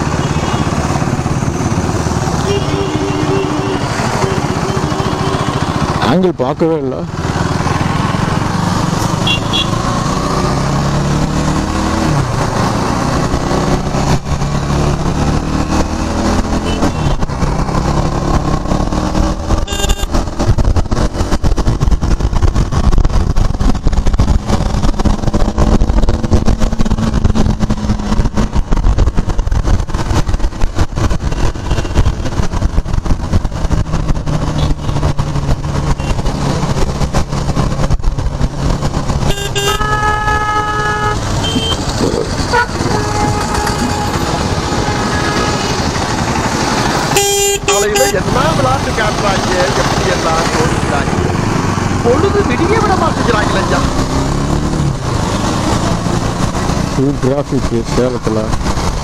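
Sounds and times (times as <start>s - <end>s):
motorcycle engine revving: 0.0s - 59.0s
wind noise on microphone: 11.4s - 47.2s.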